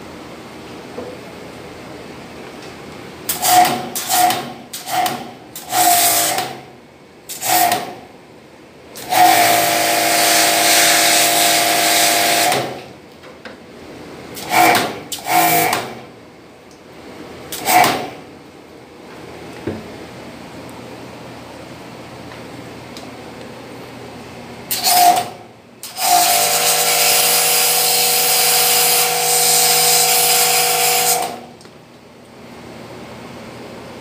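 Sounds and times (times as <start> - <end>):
pressure washer spraying water: 3.4 - 6.4, 9.1 - 12.6, 25.9 - 31.4
pump humming: 9.0 - 12.8.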